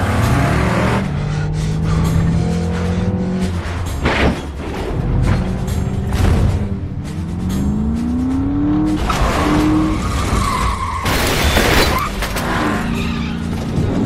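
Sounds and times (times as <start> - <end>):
car engine revving: 0.0 - 10.7
car crash: 9.0 - 13.4.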